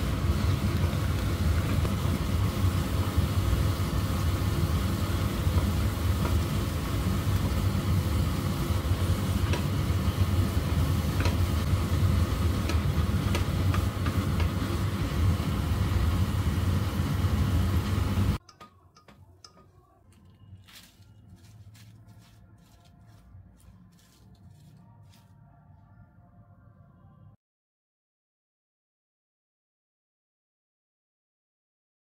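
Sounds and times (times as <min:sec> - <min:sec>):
onions sizzling in oil: 0:00.0 - 0:18.4
spatula tapping pot: 0:12.5 - 0:14.7, 0:18.4 - 0:20.3.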